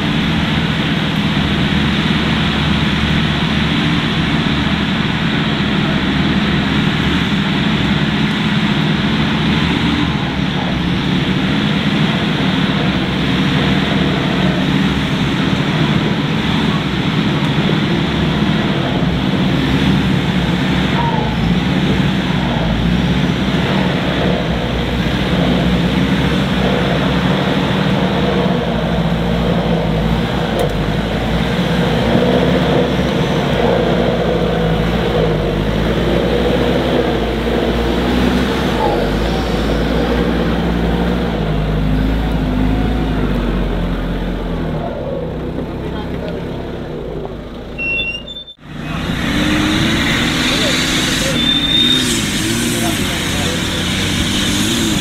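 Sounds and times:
car engine running steadily: 0.0 - 55.0
continuous noise haze: 48.7 - 55.0.

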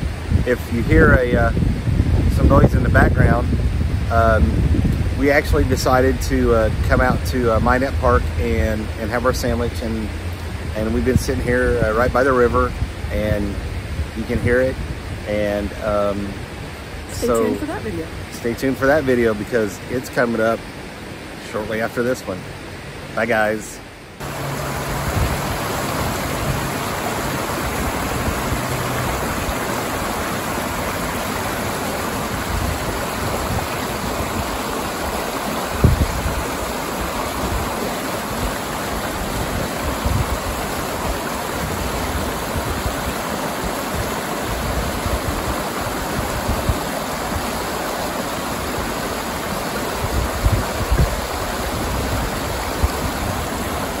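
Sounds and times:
river rushing over rocks: 14.8 - 54.0.

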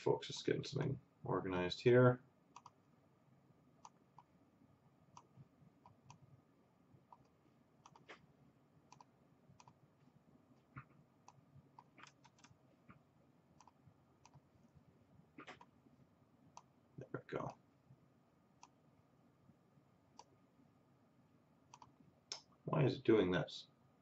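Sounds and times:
mouse and keyboard clicking: 2.6 - 2.8, 7.1 - 8.2, 10.8 - 12.6, 21.7 - 22.4.

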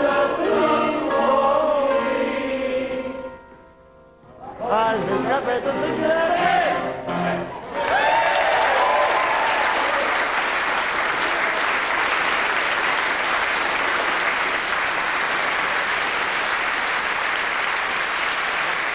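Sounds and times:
audience clapping: 7.6 - 18.9.

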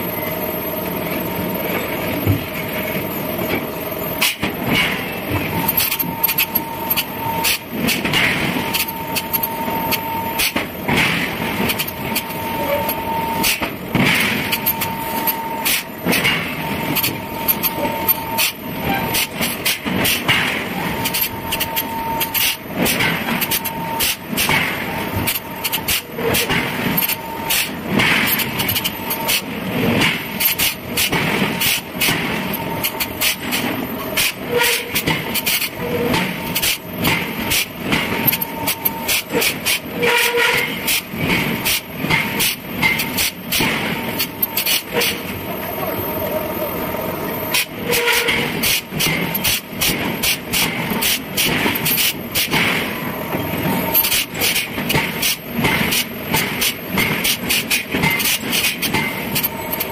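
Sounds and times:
steady mechanical noise: 0.0 - 59.9.

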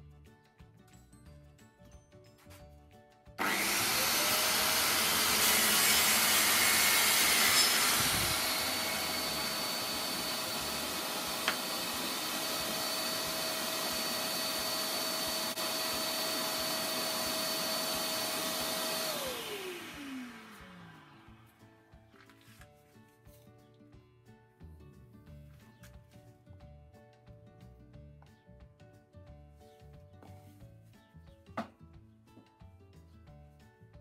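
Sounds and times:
track saw cutting panel: 3.4 - 21.4
dust extraction vacuum running: 3.4 - 21.5.

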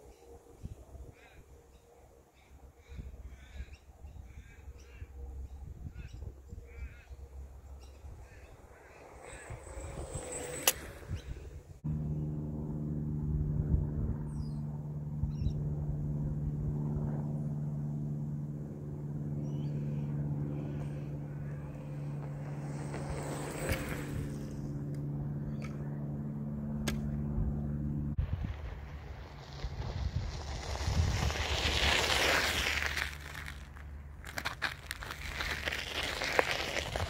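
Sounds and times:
steady low hum: 0.0 - 37.0
wind rumbling on microphone: 2.8 - 11.8, 13.2 - 17.4, 27.1 - 37.0.

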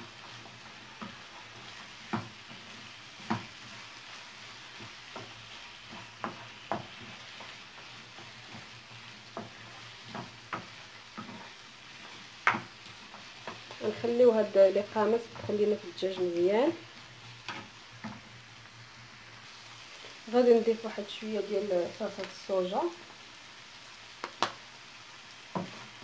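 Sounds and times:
wooden spoon scraping a pan: 0.0 - 18.5, 25.5 - 26.0
food sizzling in a frying pan: 0.0 - 26.0.

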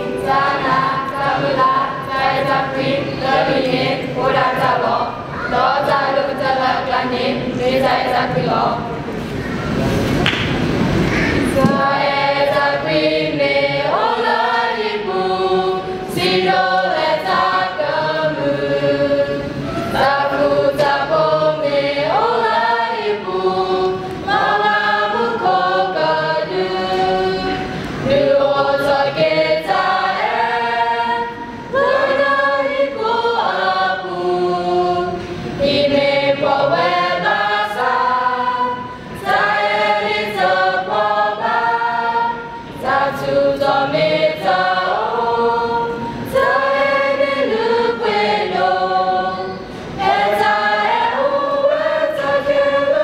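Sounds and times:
children's choir singing: 0.0 - 53.0
choir breaths: 10.8 - 53.0.

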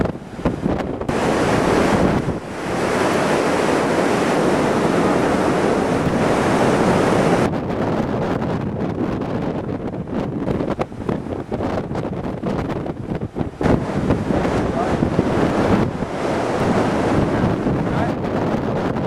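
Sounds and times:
heavy surf breaking: 0.0 - 19.0
wind buffeting microphone: 0.0 - 19.0.

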